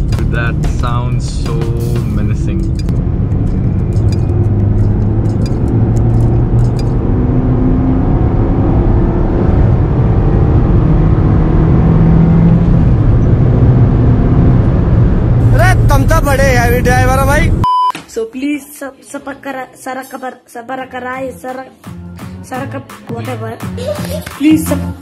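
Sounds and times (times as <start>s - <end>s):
car engine accelerating: 0.0s - 17.6s.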